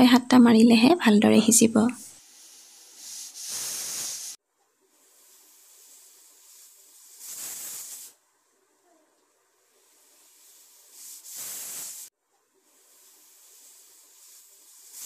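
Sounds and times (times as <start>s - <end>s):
pressure cooker steam whistling: 2.2s - 4.4s, 10.3s - 12.1s.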